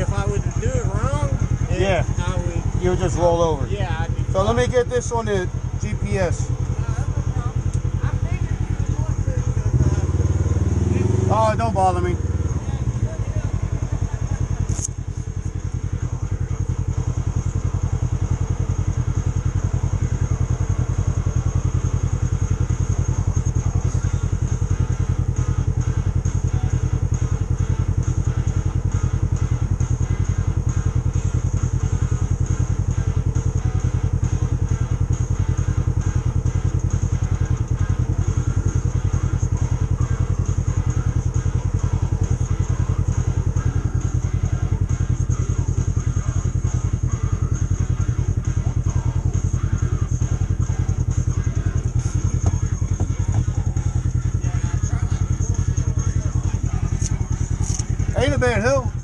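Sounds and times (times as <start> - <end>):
utv engine idling: 0.0 - 59.0.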